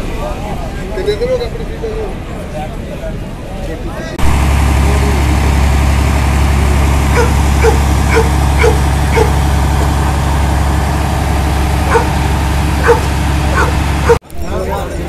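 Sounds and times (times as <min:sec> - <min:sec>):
steady low rumble: 0:04.2 - 0:14.4
dog barking: 0:07.1 - 0:09.3, 0:11.9 - 0:12.2, 0:12.8 - 0:14.2.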